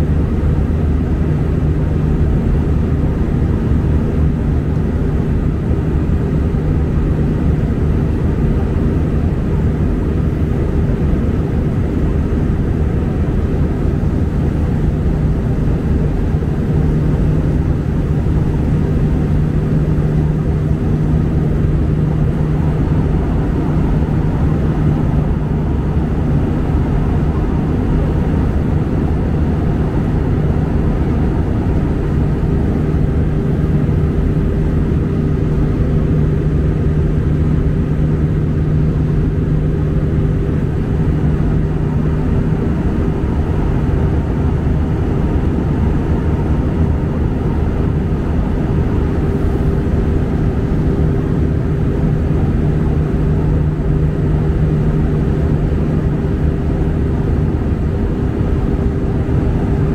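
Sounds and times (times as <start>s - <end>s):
jet engine cabin drone: 0.0s - 59.9s
low hum: 0.0s - 59.9s.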